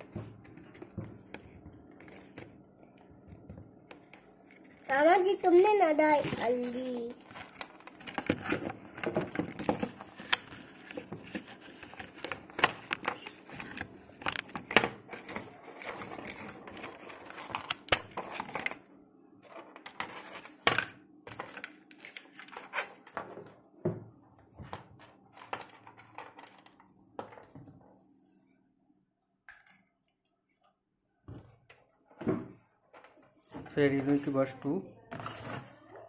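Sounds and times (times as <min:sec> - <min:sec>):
plastic packaging crinkling: 0:04.2 - 0:18.8.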